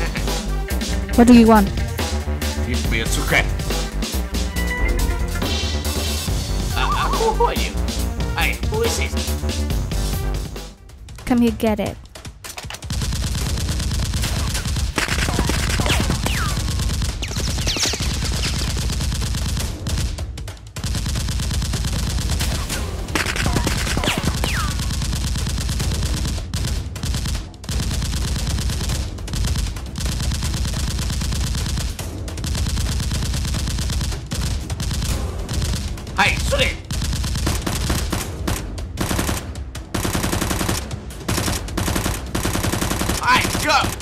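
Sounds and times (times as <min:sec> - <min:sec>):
automatic gunfire: 0:12.6 - 0:20.2, 0:20.8 - 0:44.0.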